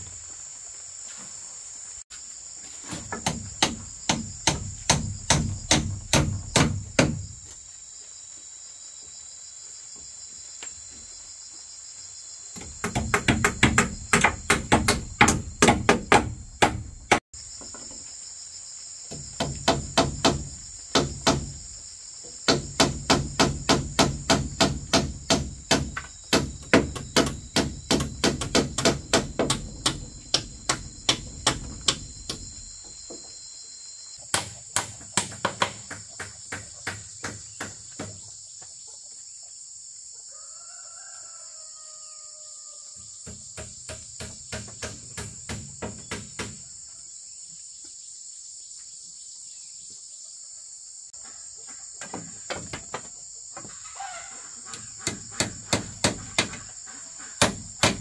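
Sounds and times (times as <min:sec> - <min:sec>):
crickets and insects chirring: 0:00.0 - 0:58.0
hammer blows: 0:22.5 - 0:32.8.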